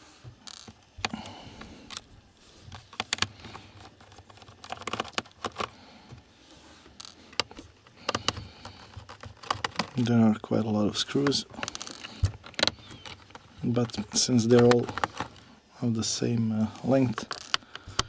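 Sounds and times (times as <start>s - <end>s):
screwdriver clicking on screws: 7.0s - 10.0s, 11.1s - 13.4s.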